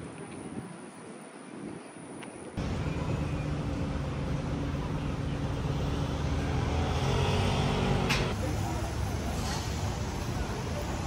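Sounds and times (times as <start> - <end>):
low engine rumble: 2.6 - 11.0.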